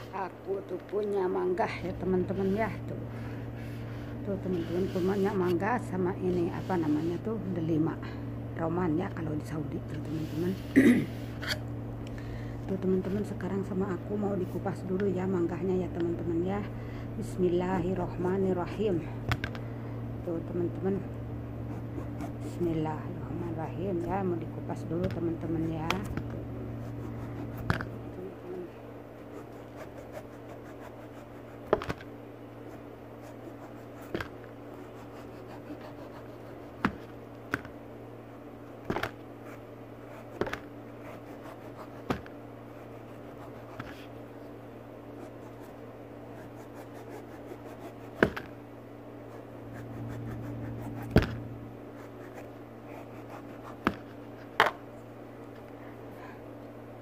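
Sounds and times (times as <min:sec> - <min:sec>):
steady low hum: 0:00.0 - 0:57.0
knife scraping mango peel: 0:34.8 - 0:36.6.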